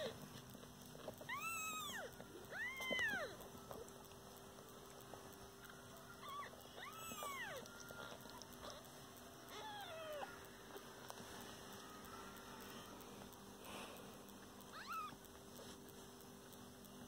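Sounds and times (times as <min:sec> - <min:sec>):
newborn kittens mewing: 0:01.2 - 0:03.9, 0:06.2 - 0:10.8, 0:14.6 - 0:15.4.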